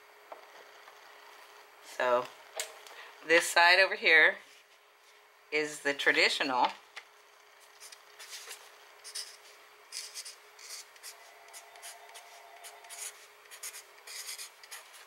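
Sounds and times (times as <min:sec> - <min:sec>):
marker pen scratching paper: 0:07.8 - 0:15.0.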